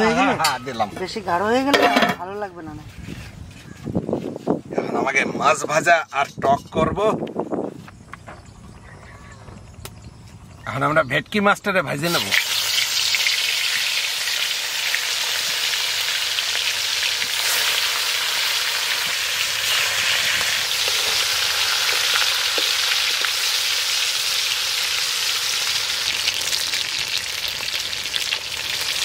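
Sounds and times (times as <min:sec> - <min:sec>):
fish sizzling in oil: 0:12.1 - 0:29.0
oil popping: 0:12.1 - 0:29.0.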